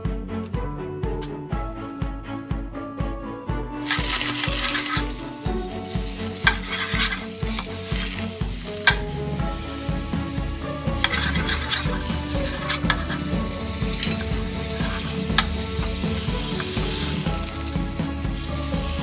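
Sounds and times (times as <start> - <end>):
background music: 0.0 - 19.0
butter sizzling in frying pan: 3.8 - 19.0
metal spoon clinking on pan: 6.4 - 7.2, 8.9 - 9.1, 11.0 - 13.3, 13.9 - 14.4.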